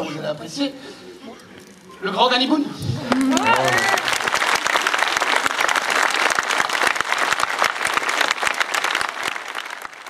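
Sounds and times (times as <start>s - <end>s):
crowd applauding: 3.0s - 10.0s.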